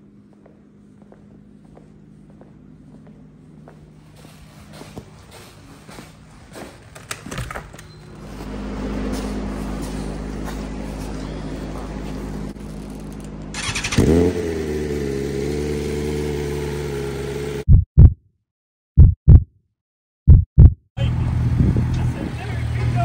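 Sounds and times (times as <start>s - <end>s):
motorcycle starting and revving: 7.0s - 17.6s
motorcycle engine idling: 8.2s - 17.6s.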